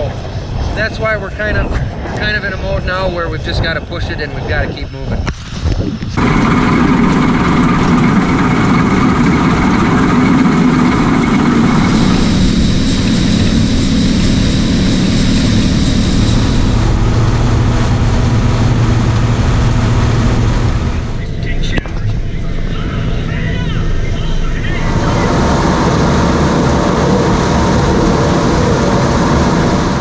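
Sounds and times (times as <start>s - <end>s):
high steady whine: 0.0s - 30.0s
combine engine and threshing machinery: 6.0s - 22.4s, 24.6s - 30.0s
deep hum: 6.1s - 30.0s.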